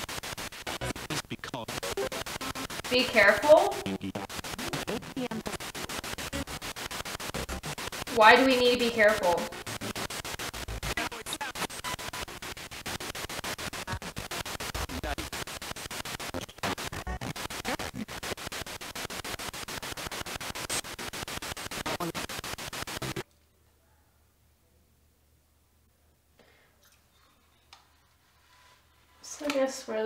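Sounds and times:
radio static chopping: 0.0s - 23.2s.

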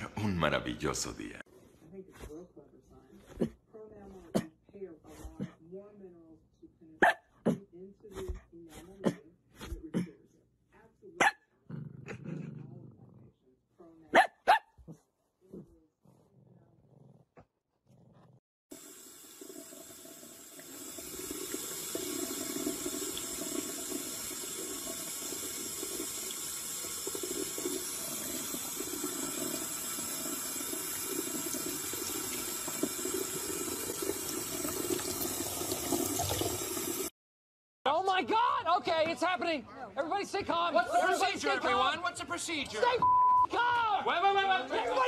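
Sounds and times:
tap water running into sink: 18.7s - 37.1s.

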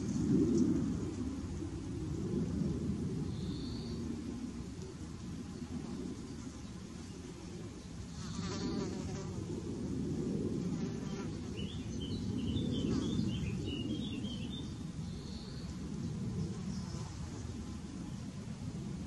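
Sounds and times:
low outdoor rumble: 0.0s - 19.0s
insect buzzing past: 8.1s - 9.5s, 10.6s - 11.8s.

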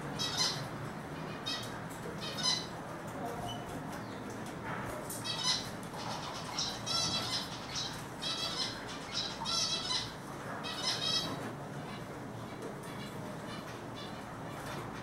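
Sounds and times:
bird twittering calls: 5.2s - 11.4s.

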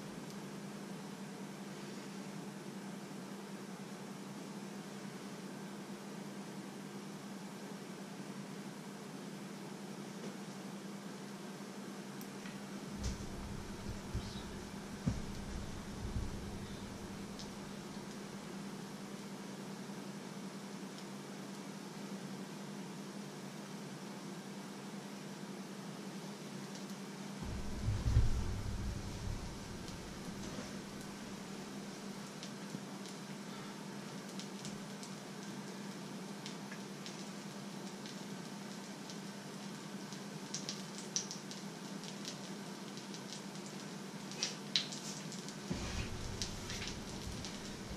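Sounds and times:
steady hiss: 11.2s - 21.4s, 25.6s - 47.9s
low even hum: 12.2s - 19.2s, 27.4s - 32.4s, 45.6s - 47.9s.

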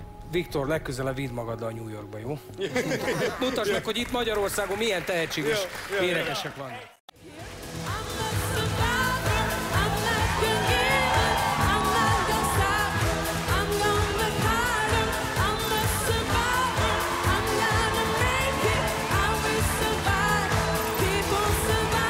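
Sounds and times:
woman singing into a microphone: 7.2s - 22.0s
pop backing track: 7.4s - 22.0s.

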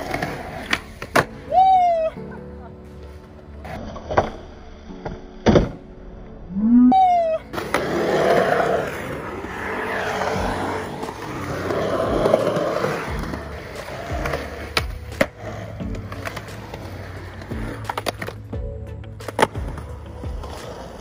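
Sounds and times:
skateboard clacks: 0.0s - 1.5s, 7.5s - 21.0s
skateboard wheels rolling on concrete: 0.0s - 6.4s, 7.0s - 21.0s.

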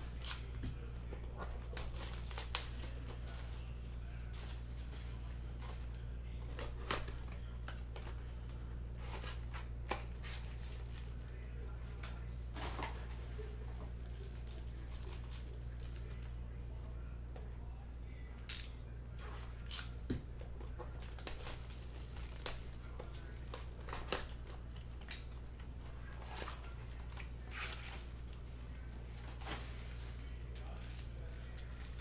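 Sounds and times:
steady low hum: 0.0s - 32.0s
card and wrapper rustling: 1.2s - 16.2s, 25.8s - 32.0s.

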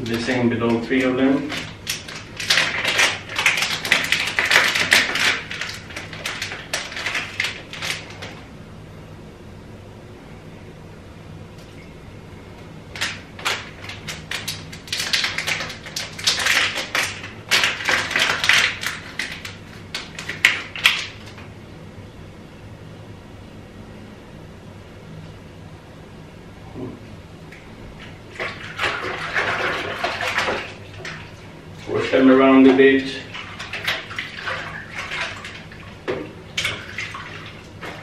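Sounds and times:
splashing in a sink: 0.0s - 8.4s, 13.0s - 21.4s, 28.0s - 38.0s.

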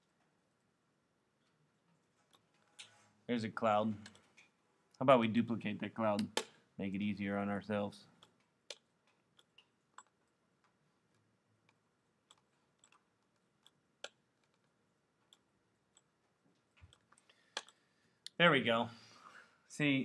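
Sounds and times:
mouse and keyboard clicks: 8.2s - 10.2s, 11.7s - 13.0s.

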